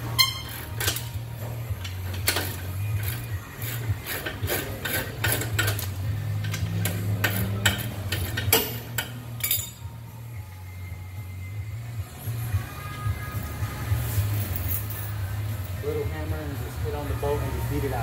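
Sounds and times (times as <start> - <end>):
ratchet wrench clicking: 0.2 - 9.8
metal tools clinking: 4.8 - 9.9.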